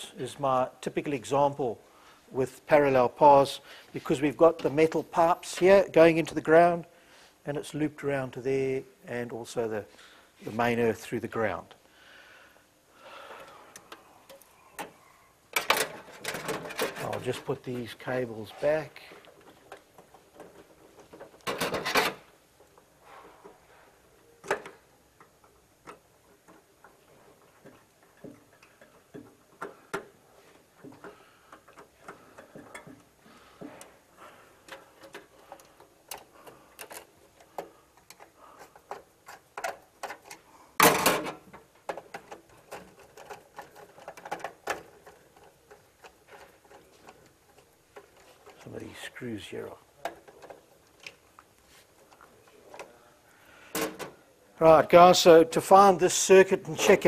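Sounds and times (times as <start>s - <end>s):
cables clicking and rattling: 13.3s - 23.6s, 24.4s - 53.0s.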